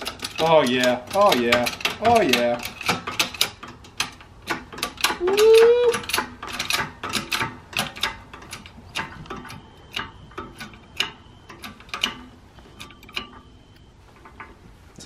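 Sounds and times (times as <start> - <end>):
shop press pump clicking: 0.0 - 14.6.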